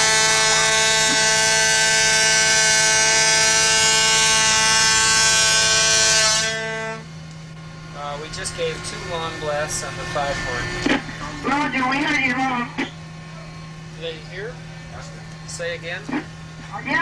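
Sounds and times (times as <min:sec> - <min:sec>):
ship's foghorn blast: 0:00.0 - 0:07.2.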